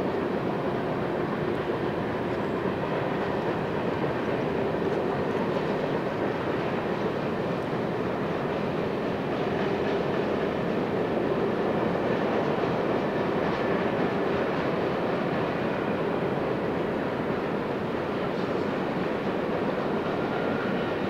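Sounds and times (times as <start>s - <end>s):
train wheels on rails: 0.0s - 21.0s.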